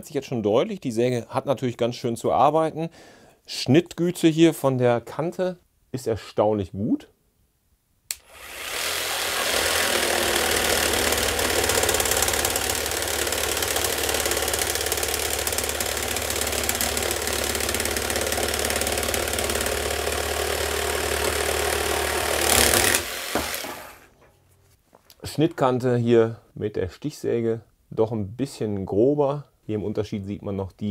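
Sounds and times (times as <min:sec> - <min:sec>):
jigsaw switch click: 0:08.1 - 0:08.3
jigsaw sawing through wood: 0:08.2 - 0:24.1.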